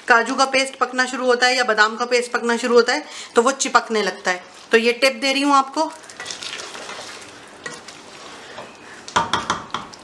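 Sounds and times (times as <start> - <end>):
simmering sizzle: 0.0 - 10.0
spatula knocking and scraping pot: 8.5 - 10.0.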